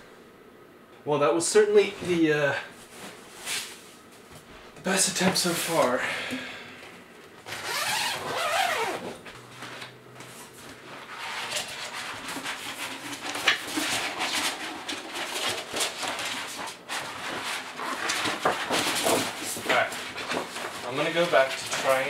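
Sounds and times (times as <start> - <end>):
fabric cover rustling and crinkling: 7.5 - 9.8
paper backdrop rustling: 7.5 - 22.0.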